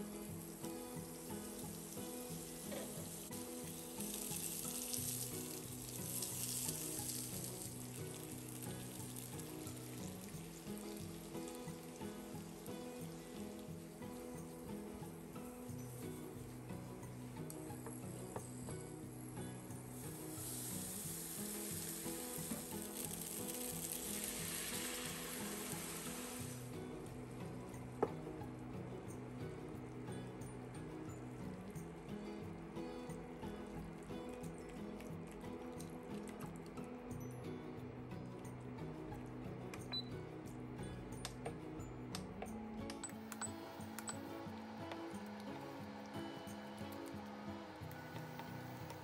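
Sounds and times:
food sizzling in hot oil: 0.0 - 28.5
background music: 0.0 - 49.0.

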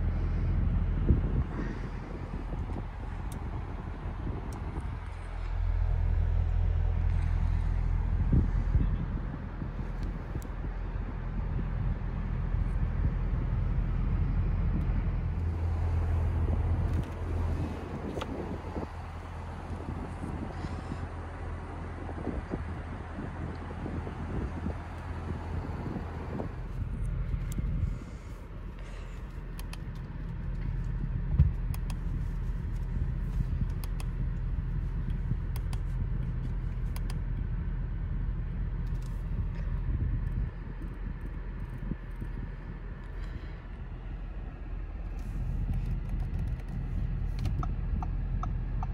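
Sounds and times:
car engine idling: 0.0 - 48.9
light clicks: 28.8 - 37.4.

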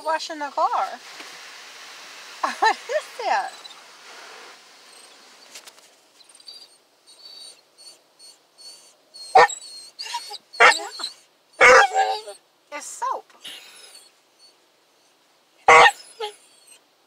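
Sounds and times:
dog whining: 4.9 - 5.5, 6.2 - 12.4, 13.4 - 16.8.

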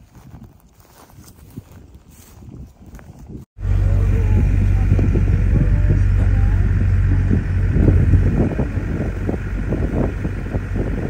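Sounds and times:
wind on microphone: 0.0 - 11.0
ferry engine drone: 3.6 - 11.0.

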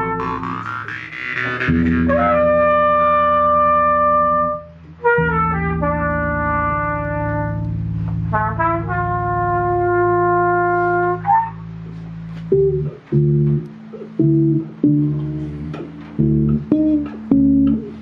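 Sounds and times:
trumpet holding a long note: 0.0 - 11.6
low sustained bass tone: 0.0 - 18.0
plucked electric bass notes: 0.0 - 18.0.

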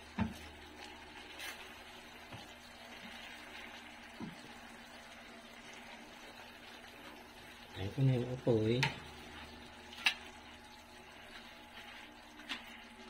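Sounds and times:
sauce bubbling in pan: 0.0 - 13.0
spatula stirring: 8.8 - 13.0.

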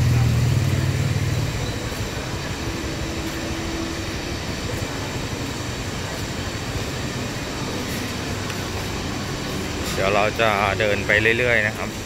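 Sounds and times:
market hall rumble: 0.0 - 12.0.

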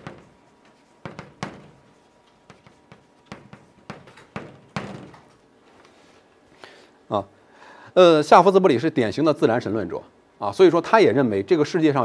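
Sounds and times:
chalk scratching: 0.0 - 4.8
chalk tapping on blackboard: 0.0 - 5.3.

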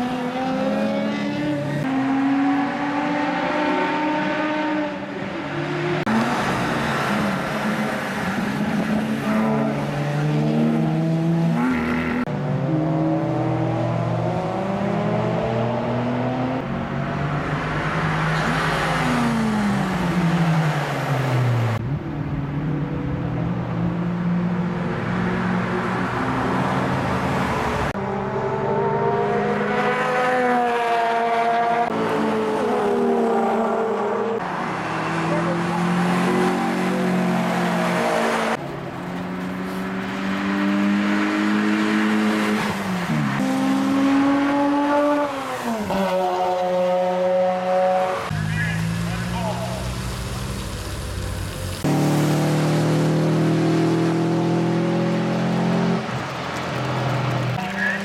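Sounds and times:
race car engines revving: 0.0 - 58.0.

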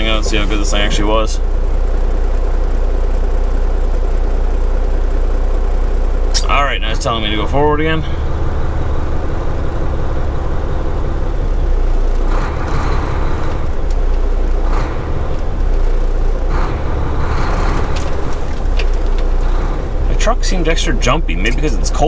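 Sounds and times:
truck diesel engine drone: 0.0 - 22.0.

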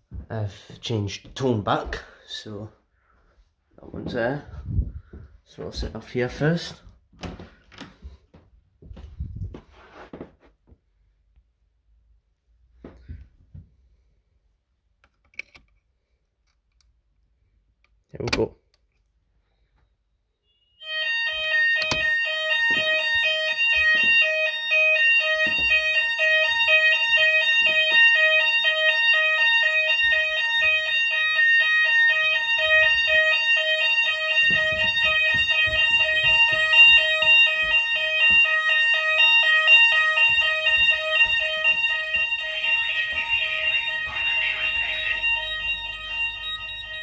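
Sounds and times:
fire alarm multi-tone signal: 20.2 - 47.0.

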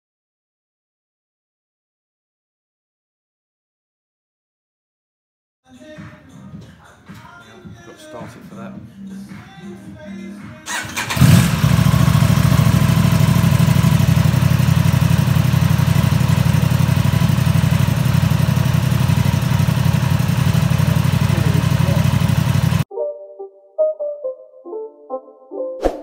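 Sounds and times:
motorcycle engine idling: 10.7 - 22.8.

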